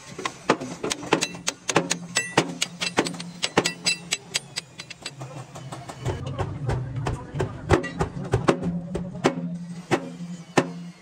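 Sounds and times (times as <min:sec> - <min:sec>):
metal clinking and tapping: 0:00.9 - 0:05.2.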